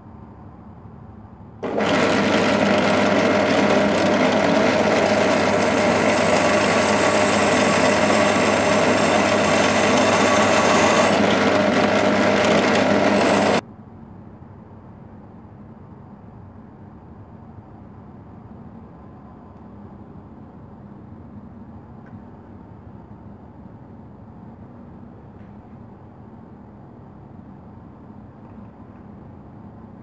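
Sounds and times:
drill press drilling metal: 1.6 - 13.6.

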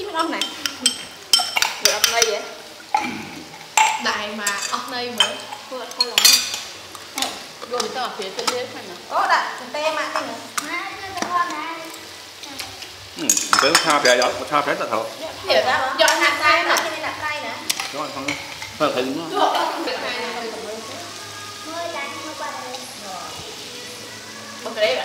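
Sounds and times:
utensils clinking against dishes: 0.0 - 9.0, 12.6 - 14.8, 15.6 - 20.5
metal spoon clinking in ceramic bowl: 0.2 - 2.3, 3.8 - 7.3.

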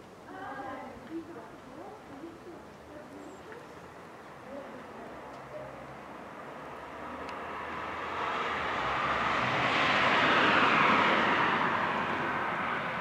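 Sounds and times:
passing vehicle rushing: 6.2 - 13.0.

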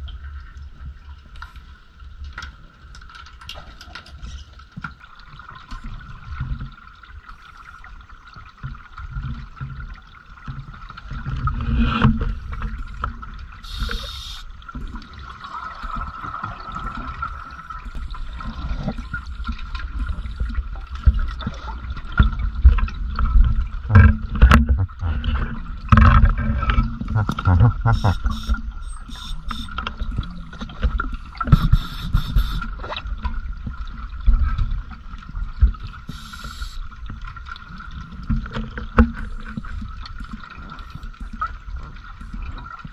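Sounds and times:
low rumble of water underwater: 0.0 - 42.9
faint steady whine: 13.6 - 14.5, 26.6 - 30.6, 36.1 - 37.0.

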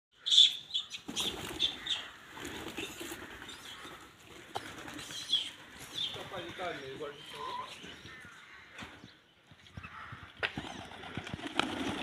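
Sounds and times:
birds chirping: 0.1 - 12.0
pigeons cooing: 0.2 - 9.1.

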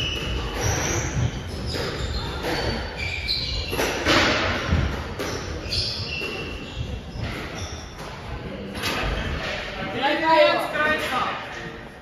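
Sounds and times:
squash ball smacking rackets and walls: 0.0 - 9.5
shoes squeaking on court floor: 0.0 - 9.8.

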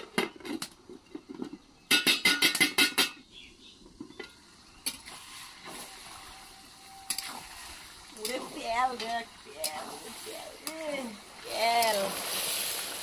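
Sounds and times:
faint hiss from pot: 4.2 - 13.0.

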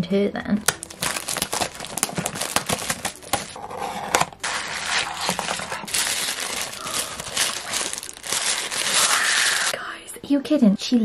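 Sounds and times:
cellophane wrap crinkling: 0.6 - 3.6, 4.2 - 9.8
tissue paper rustling: 0.8 - 9.7.

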